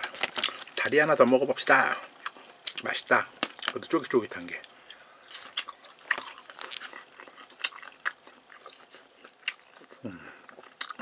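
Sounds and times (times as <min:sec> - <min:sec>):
person chewing: 0:01.6 - 0:02.8, 0:04.6 - 0:11.0.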